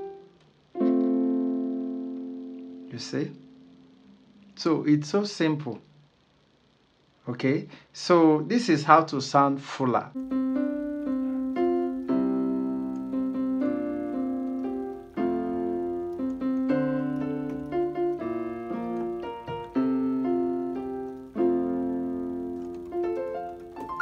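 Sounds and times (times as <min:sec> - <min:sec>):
keyboard piano melody with chords: 0:00.0 - 0:04.0, 0:10.2 - 0:24.0.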